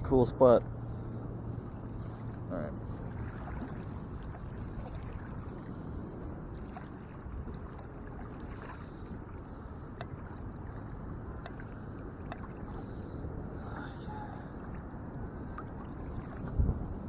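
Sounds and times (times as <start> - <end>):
steady low rumble: 0.0 - 17.0
water sloshing around legs: 1.5 - 17.0
small splashes: 3.0 - 5.8.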